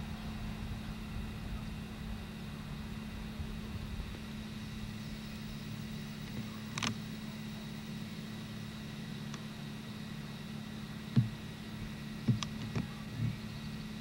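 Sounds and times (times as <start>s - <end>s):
camcorder hum and whine: 0.0s - 14.0s
soft handling thumps: 12.2s - 13.4s.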